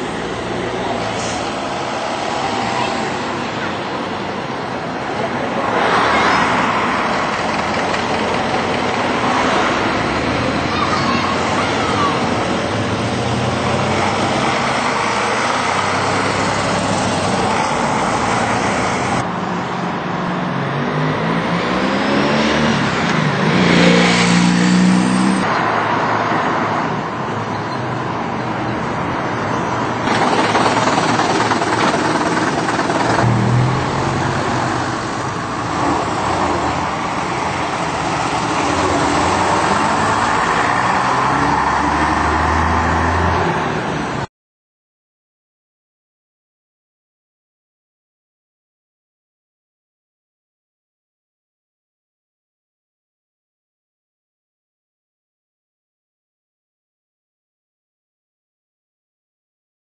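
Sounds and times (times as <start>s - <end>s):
bus engines passing: 0.0s - 44.3s
traffic noise: 0.0s - 44.3s.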